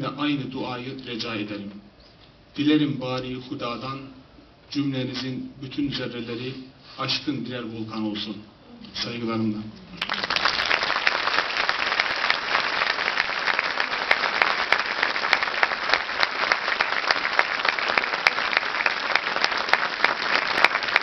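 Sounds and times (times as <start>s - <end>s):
audience applauding: 10.0s - 21.0s.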